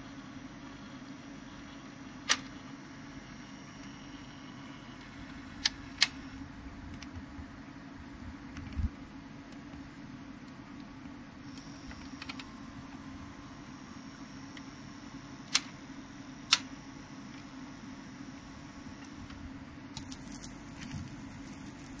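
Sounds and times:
turntable low hum: 0.0s - 22.0s
sharp clicks: 15.5s - 15.8s, 16.5s - 16.7s.

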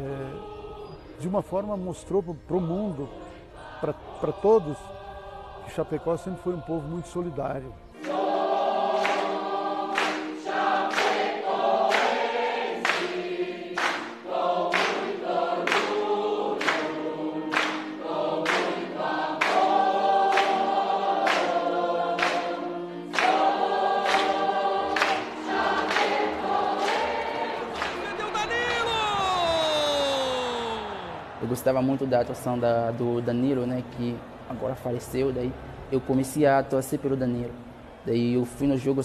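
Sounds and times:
mixed choir singing: 0.0s - 1.3s, 2.5s - 29.6s, 30.2s - 34.6s
clapped beat: 8.0s - 8.4s, 9.0s - 21.6s, 22.2s - 22.5s, 23.1s - 31.4s.

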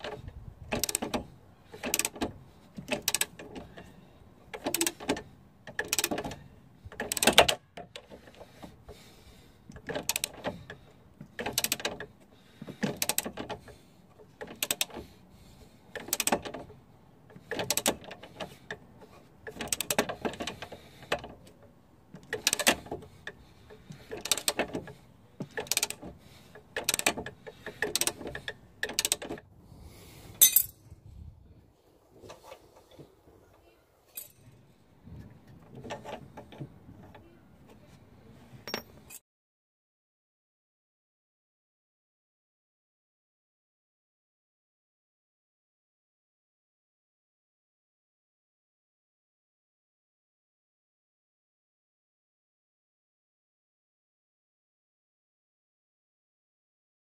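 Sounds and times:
metallic clink: 30.4s - 30.8s.

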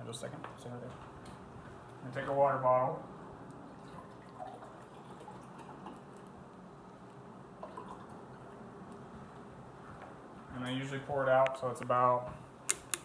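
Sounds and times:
water pouring and dripping: 3.7s - 6.1s.

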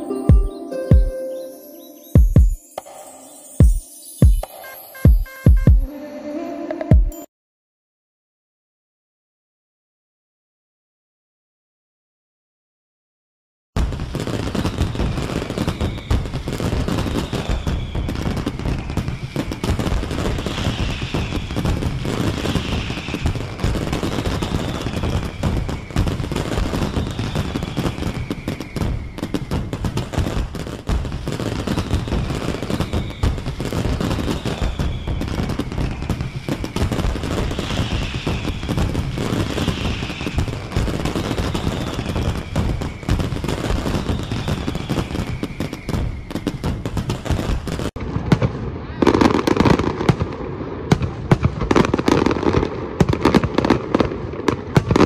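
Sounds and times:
fireworks bangs and crackles: 2.1s - 5.8s, 13.8s - 55.0s
falling firework whistles: 13.8s - 47.9s, 48.8s - 50.0s.

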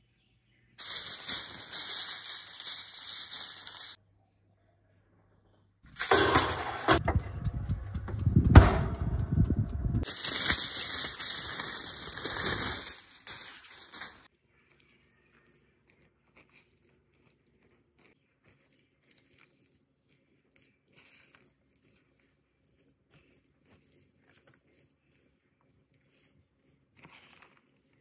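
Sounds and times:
aluminium foil crinkling: 0.8s - 4.0s, 10.0s - 28.0s.

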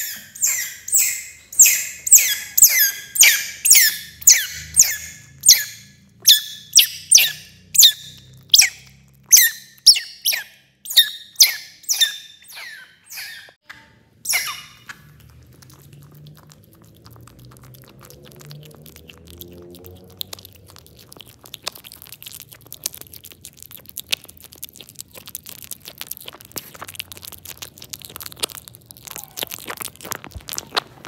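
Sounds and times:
otter chewing and crunching: 0.0s - 13.6s, 14.2s - 31.0s
otter squeak: 0.0s - 15.2s.

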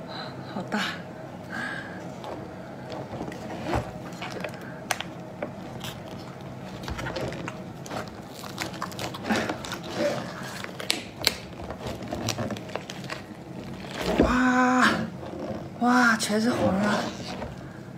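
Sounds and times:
lobster shell cracking: 4.1s - 14.0s.

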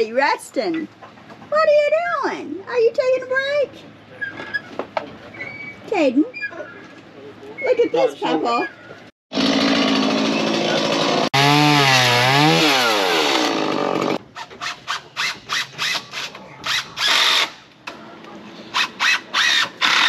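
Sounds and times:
chainsaw cutting and revving: 9.3s - 14.2s, 15.2s - 17.6s, 18.7s - 20.0s.

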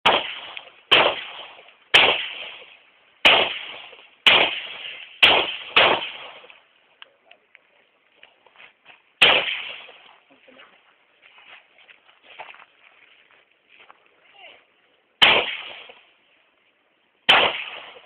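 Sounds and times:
pistol shots echoing: 0.0s - 6.6s, 9.2s - 10.0s, 15.2s - 16.0s, 17.3s - 18.0s.

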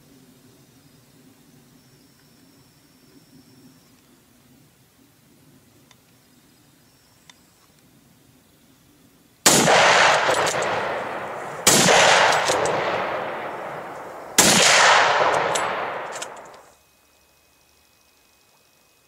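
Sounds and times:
rifle shots: 9.4s - 16.7s
long rolling echo: 9.5s - 16.7s.

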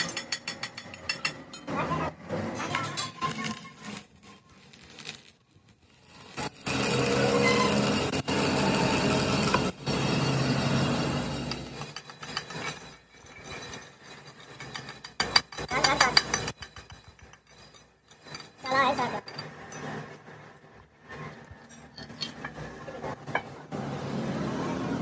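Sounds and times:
welding arc crackling and hissing: 2.6s - 12.2s.

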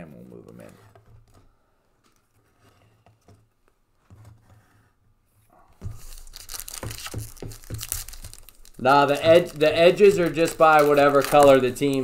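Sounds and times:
wrapper crinkling and tearing: 5.8s - 12.0s.

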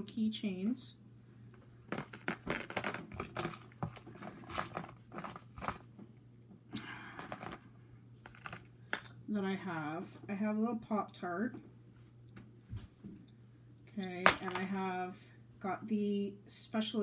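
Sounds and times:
plastic rustle: 1.9s - 5.8s
plastic toys clicking and scraping: 1.9s - 5.8s, 7.2s - 7.6s, 8.3s - 9.1s.

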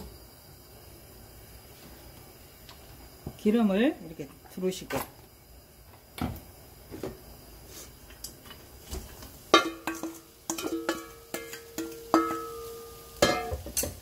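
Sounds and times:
bowl and spatula clinking on pan: 9.5s - 14.0s.

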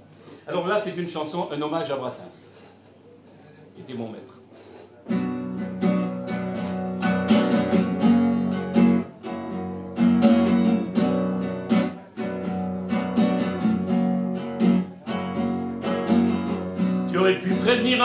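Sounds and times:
acoustic guitar strumming: 5.1s - 18.0s.

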